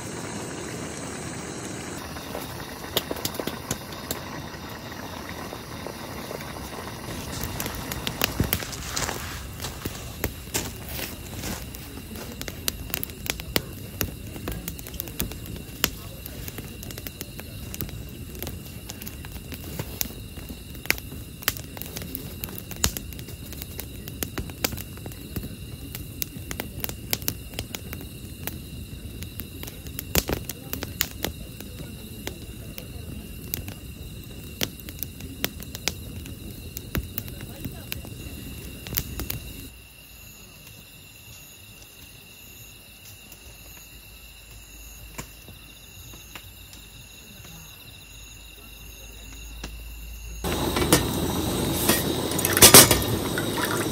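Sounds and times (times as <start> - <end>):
low rush of flame: 0.0 - 23.4, 50.4 - 53.9
burning wood crackling and popping: 0.0 - 39.8, 50.4 - 53.9
crickets and insects chirping: 0.0 - 53.9.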